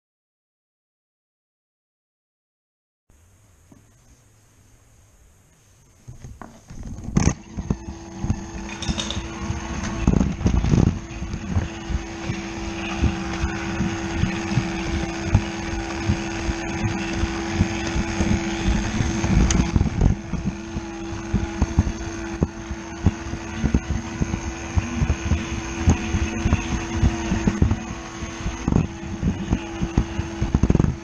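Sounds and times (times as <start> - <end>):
toy train motor whirring: 7.2 - 11.6.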